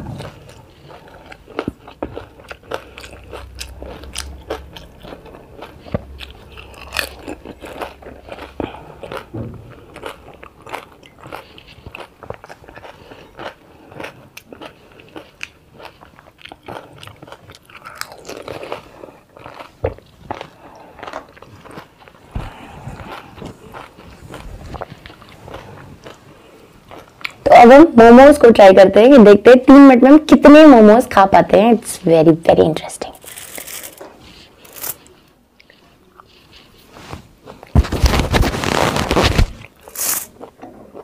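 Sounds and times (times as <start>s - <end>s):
chewing: 0.0s - 27.5s, 33.2s - 37.7s, 39.6s - 41.0s
crisp shells crunching in mouth: 0.3s - 26.2s, 33.0s - 35.2s, 37.6s - 41.0s.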